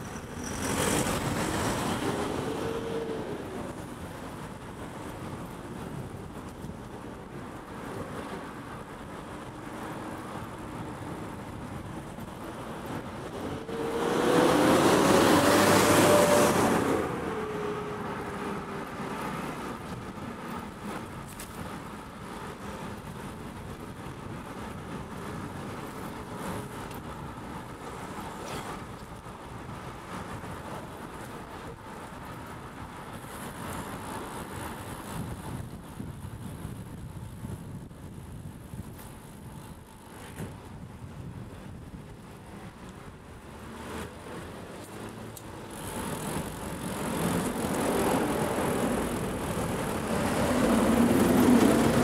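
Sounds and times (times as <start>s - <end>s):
road and wind noise: 0.0s - 52.0s
motor vehicle passing: 12.9s - 19.9s, 43.6s - 52.0s.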